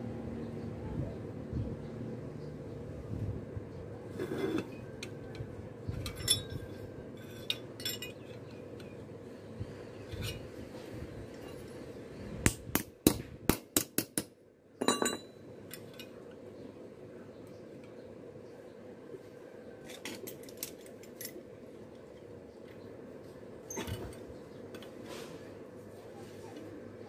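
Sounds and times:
metal clinking: 6.0s - 8.9s.

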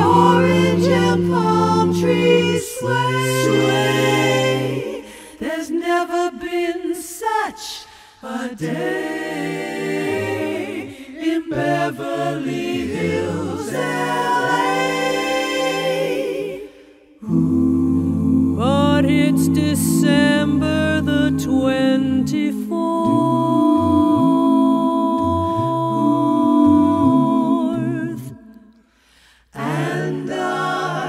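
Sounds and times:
choir singing a cappella: 0.0s - 31.0s.

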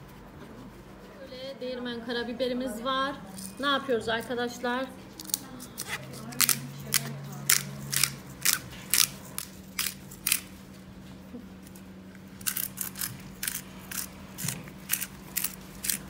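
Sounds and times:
pepper mill grinding clicks: 12.4s - 16.0s.

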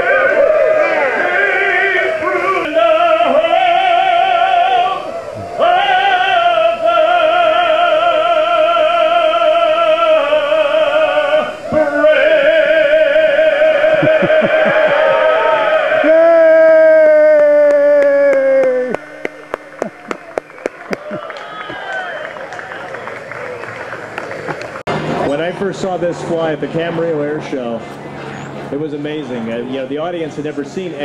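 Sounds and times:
operatic singing with vibrato: 0.0s - 19.2s.

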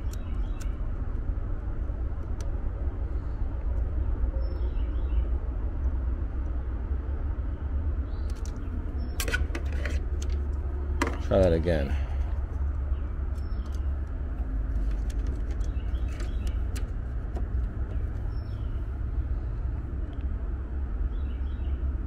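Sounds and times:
sharp clicks: 0.0s - 1.3s, 8.2s - 11.3s, 12.2s - 18.8s
low outdoor rumble: 0.0s - 22.0s.

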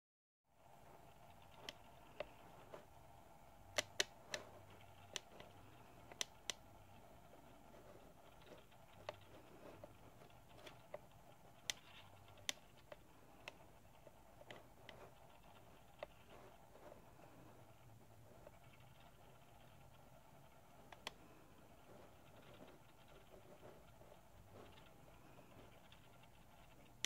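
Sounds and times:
faint hum: 0.5s - 27.0s
sharp clicks: 3.6s - 7.6s, 8.2s - 16.6s.

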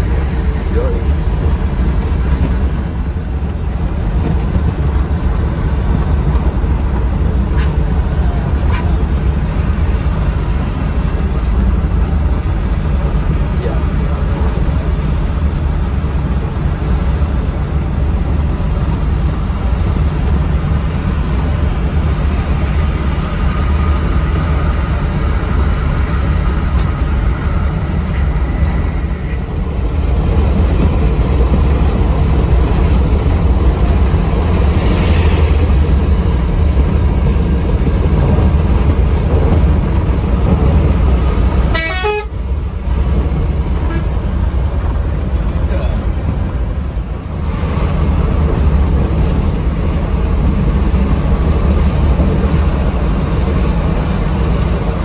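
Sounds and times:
engine and road drone: 0.0s - 55.0s
horn blast: 41.7s - 42.3s.

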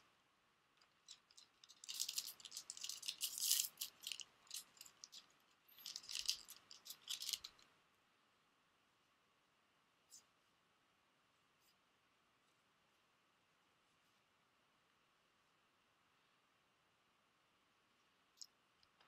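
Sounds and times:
foil wrapper crinkling: 1.0s - 7.6s.

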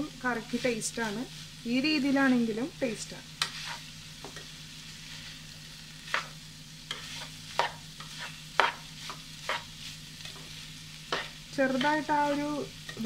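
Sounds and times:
faint sizzle of beans cooking: 0.0s - 13.0s
spatula scraping a pan: 3.4s - 5.4s, 6.0s - 13.0s.

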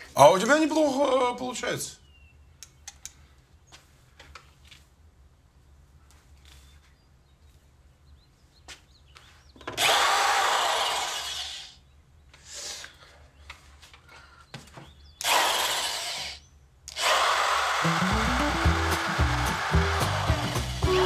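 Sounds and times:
electric drill boring: 9.8s - 11.6s, 16.9s - 21.0s.

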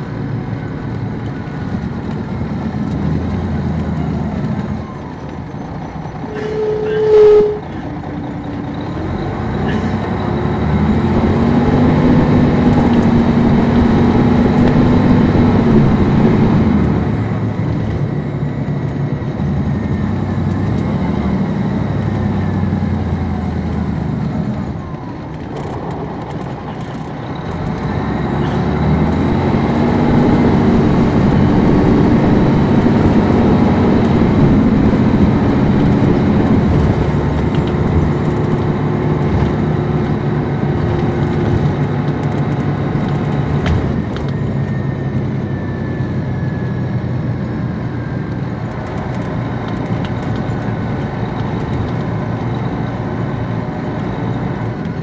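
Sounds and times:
bus diesel engine accelerating: 0.0s - 55.0s
loud tone: 6.3s - 7.8s
turbo whistle: 6.3s - 7.8s.

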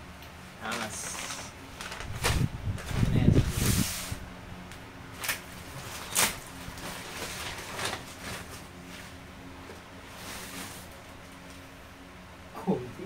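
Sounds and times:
faint steady hum: 0.0s - 13.0s
paper bag crinkling: 0.6s - 3.7s, 5.2s - 9.1s.

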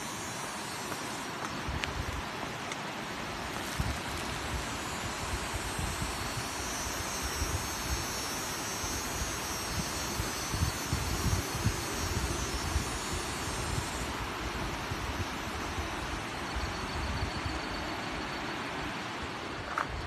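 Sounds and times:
wind buffeting microphone: 3.4s - 17.7s.

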